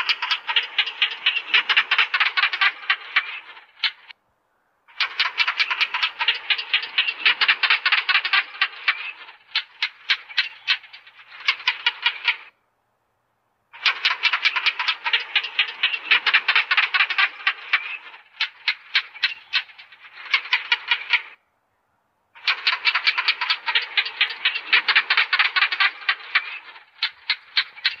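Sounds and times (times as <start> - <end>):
gecko chirping: 0.0 - 4.1.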